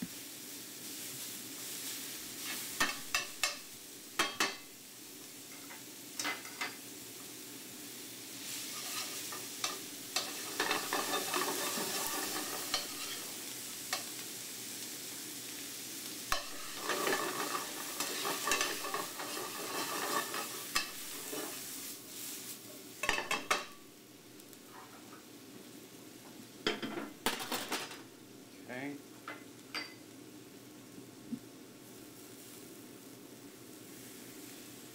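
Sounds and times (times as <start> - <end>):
vegetables sizzling in a skillet: 0.0 - 34.9
metal tongs scraping a pan: 2.4 - 4.7, 5.5 - 6.8, 8.6 - 14.1, 16.3 - 21.8, 23.0 - 23.8.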